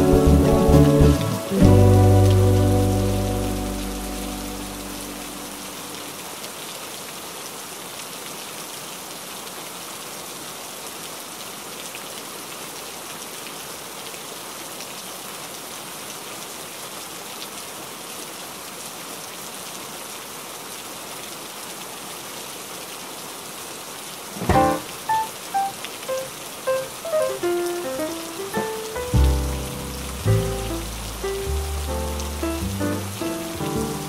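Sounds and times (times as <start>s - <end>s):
rain on window glass: 0.0s - 8.4s, 23.8s - 34.0s.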